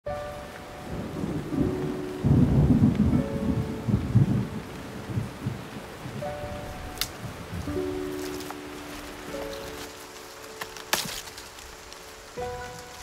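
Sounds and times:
held musical notes: 0.1s - 13.0s
deep thunder-like rumble: 0.8s - 8.1s.

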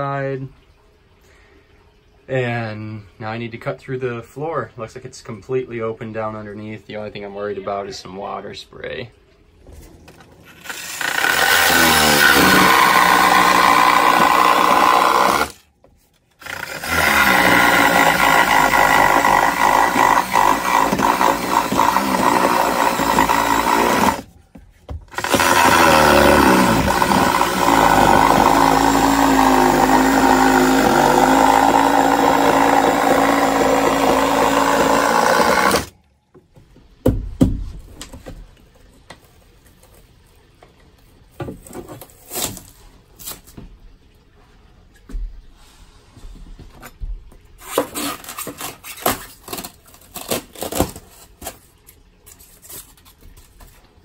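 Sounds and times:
reciprocating saw cutting plywood: 10.4s - 15.6s, 16.4s - 24.3s, 25.1s - 35.9s.

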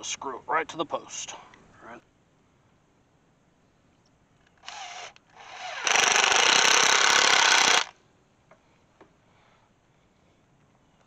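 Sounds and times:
cordless drill driving screw: 4.6s - 7.9s.

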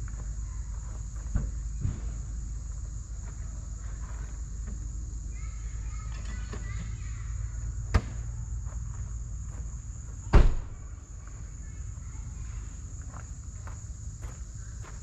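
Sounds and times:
insect chorus: 0.0s - 15.0s
sharp knock: 10.3s - 10.7s.

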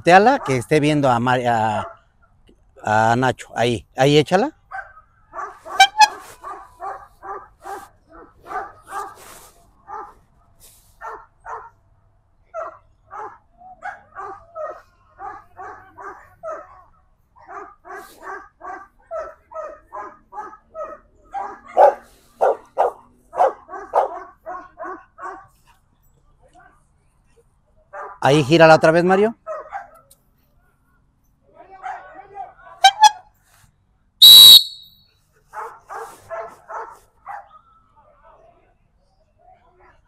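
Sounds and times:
dog barking: 0.3s - 0.6s, 1.8s - 2.1s, 4.7s - 10.2s, 11.0s - 11.8s, 12.5s - 25.6s, 27.9s - 28.2s, 29.4s - 30.0s, 31.8s - 32.2s, 35.5s - 37.8s.

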